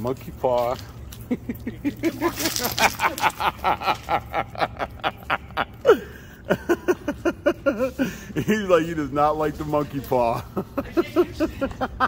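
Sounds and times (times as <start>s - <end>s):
person laughing hard: 1.3s - 8.5s.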